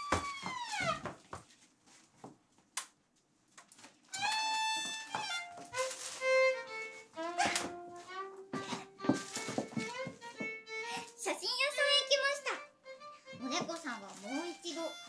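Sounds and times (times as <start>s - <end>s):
solo violin: 4.1s - 15.0s
soft knocks: 8.6s - 10.6s.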